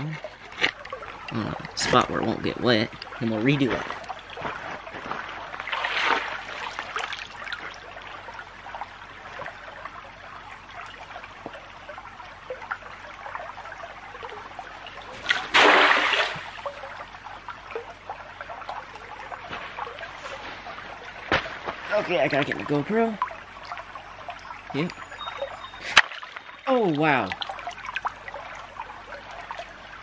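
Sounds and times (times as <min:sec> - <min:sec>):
creek water trickling: 0:00.0 - 0:30.0
water drips and plinks: 0:00.0 - 0:30.0
loud water splash: 0:15.2 - 0:16.9.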